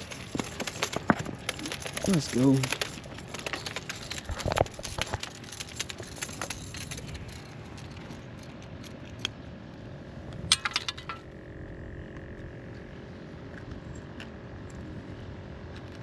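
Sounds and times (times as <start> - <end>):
fishing gear clinking: 0.0 - 9.3.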